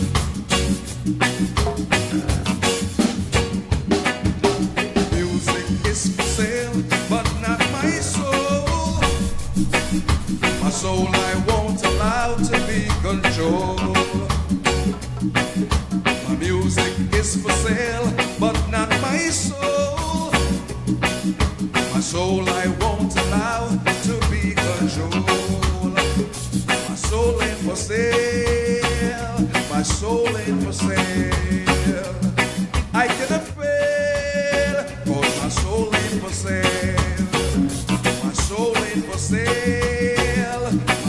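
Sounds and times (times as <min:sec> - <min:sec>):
person singing over a band: 0:05.1 - 0:09.6, 0:10.4 - 0:15.0, 0:16.1 - 0:20.6, 0:21.8 - 0:41.0.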